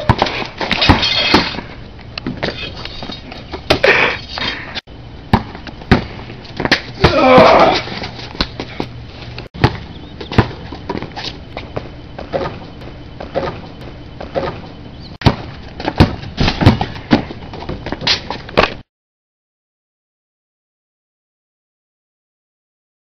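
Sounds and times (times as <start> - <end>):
basketball bouncing on concrete: 0.0 - 1.6, 5.3 - 9.0, 9.6 - 18.8.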